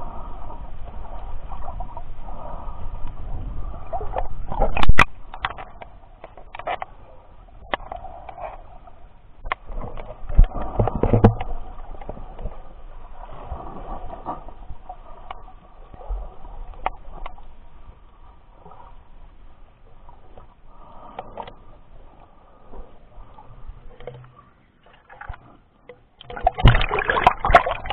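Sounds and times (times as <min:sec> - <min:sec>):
muffled underwater water noise: 0:00.0 - 0:27.9
underwater clicks and knocks: 0:04.1 - 0:07.0, 0:07.6 - 0:08.6, 0:09.4 - 0:12.5, 0:16.7 - 0:17.4, 0:23.9 - 0:27.9.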